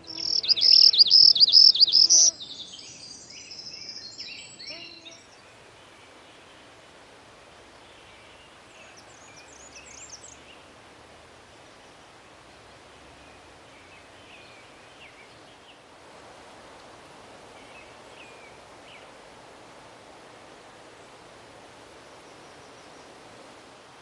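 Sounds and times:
bird singing high thin notes: 0:00.0 - 0:05.3
lower bird chirps: 0:00.0 - 0:06.6
background hiss: 0:00.0 - 0:24.0.

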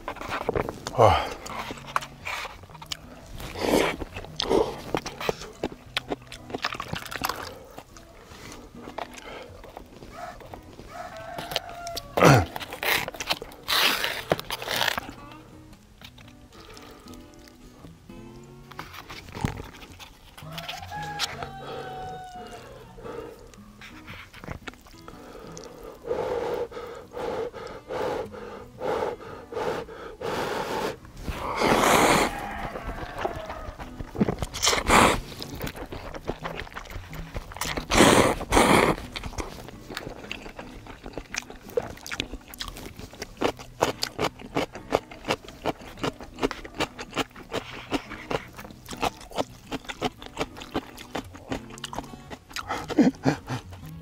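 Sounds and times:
wet mouth smacks: 0:00.1 - 0:08.1, 0:23.4 - 0:26.1, 0:33.2 - 0:54.0
person slurping noodles: 0:03.3 - 0:05.4, 0:25.2 - 0:32.6, 0:34.5 - 0:36.9, 0:37.6 - 0:39.4.

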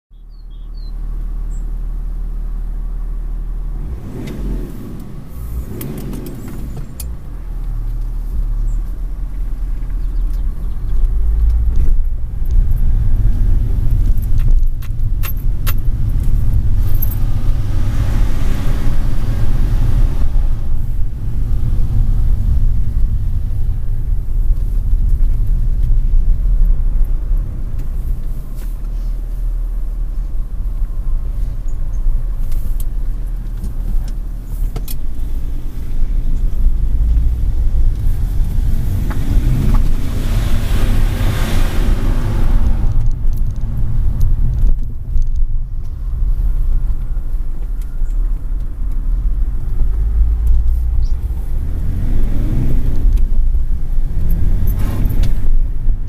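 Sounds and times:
car engine accelerating hard: 0:02.0 - 0:56.0.

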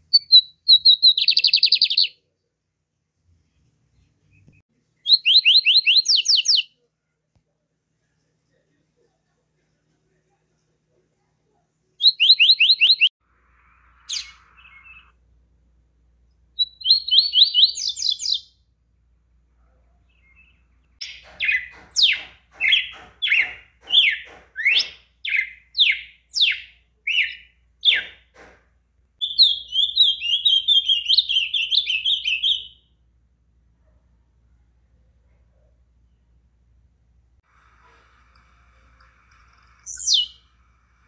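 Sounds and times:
bird twittering: 0:00.1 - 0:02.1, 0:13.7 - 0:15.1, 0:38.3 - 0:40.5
bird trilling: 0:13.7 - 0:15.1, 0:39.0 - 0:40.5
bird whistling downslurred notes: 0:39.4 - 0:40.4.

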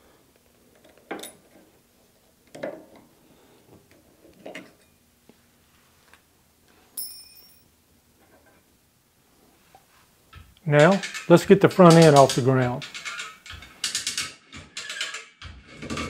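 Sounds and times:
sharp metallic clink: 0:07.0 - 0:07.7
metal scrapes and clicks: 0:10.8 - 0:16.0.

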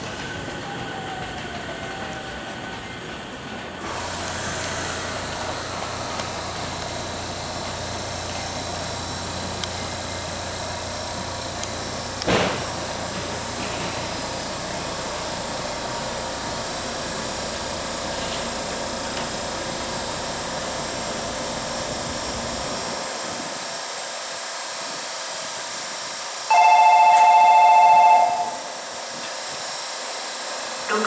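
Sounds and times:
electric train humming: 0:00.0 - 0:31.0
electronic platform departure bell: 0:26.5 - 0:28.7.

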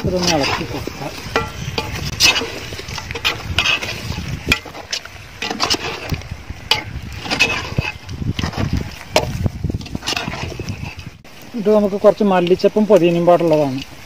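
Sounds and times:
metal spoon scraping a pot: 0:00.0 - 0:11.2.

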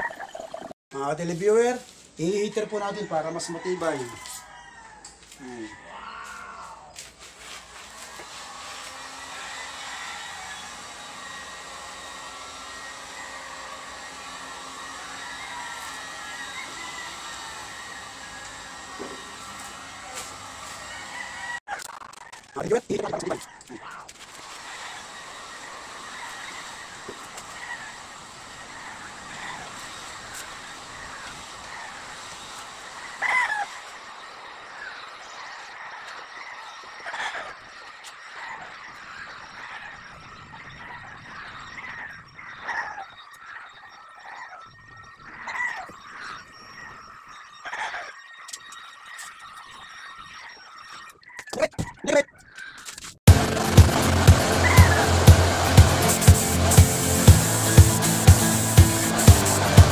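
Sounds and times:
heat gun blowing air: 0:07.6 - 0:21.1, 0:53.6 - 0:59.9.

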